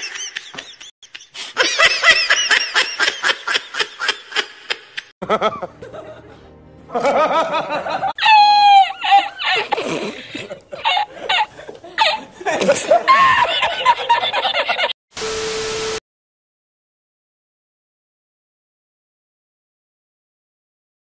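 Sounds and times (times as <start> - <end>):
person laughing: 0.0 - 15.0
music: 5.2 - 8.1.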